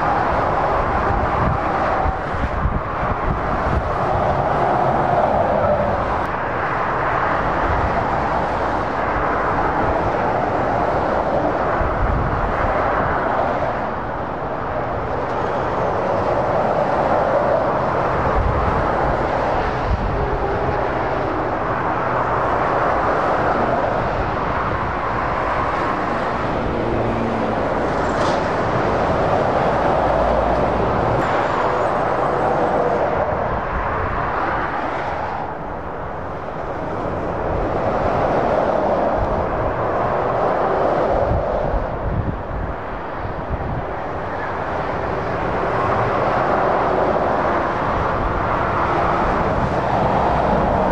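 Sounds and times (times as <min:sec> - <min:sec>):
motorway traffic passing: 0:00.0 - 0:50.9.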